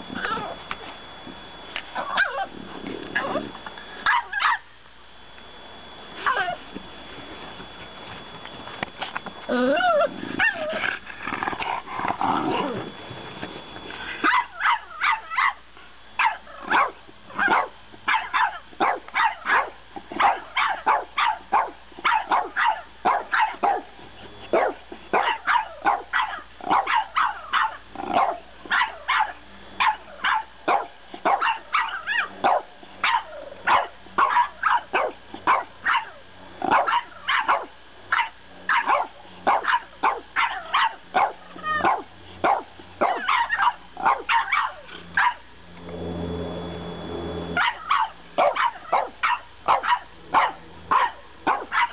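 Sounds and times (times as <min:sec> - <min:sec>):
dogs growling and whining: 0:00.0 - 0:00.7, 0:02.0 - 0:04.4, 0:06.2 - 0:06.7, 0:09.0 - 0:15.4, 0:24.2 - 0:30.3, 0:31.5 - 0:34.8, 0:40.1 - 0:49.1
high-pitched yappy barks: 0:04.1 - 0:04.6, 0:14.2 - 0:15.6, 0:16.2 - 0:23.9, 0:24.6 - 0:45.4, 0:47.6 - 0:51.9.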